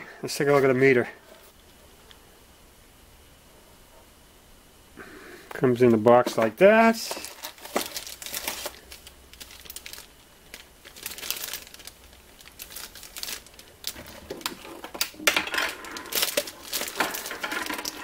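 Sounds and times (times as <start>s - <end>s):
plastic bag crinkling: 6.2s - 18.0s.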